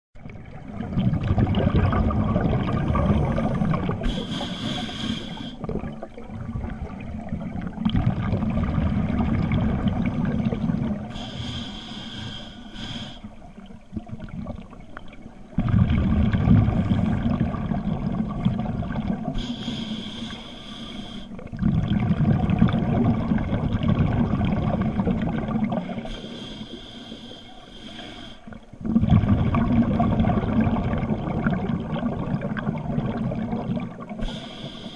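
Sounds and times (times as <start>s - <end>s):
exhaled bubbles burbling: 0.2s - 4.4s, 5.6s - 11.1s, 13.6s - 19.4s, 21.3s - 26.2s, 28.6s - 34.4s
diver breathing through regulator: 2.8s - 5.7s, 11.1s - 13.4s, 19.4s - 21.4s, 26.0s - 28.6s, 34.2s - 34.9s.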